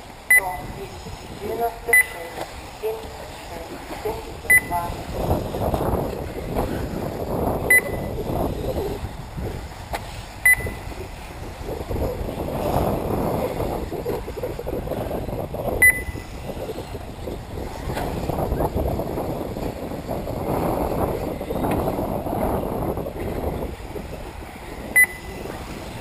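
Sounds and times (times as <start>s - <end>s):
short electronic beeps: 0.3s - 0.8s, 1.9s - 2.2s, 4.5s - 4.9s, 7.7s - 8.1s, 10.4s - 10.9s, 15.8s - 16.2s, 24.9s - 25.4s.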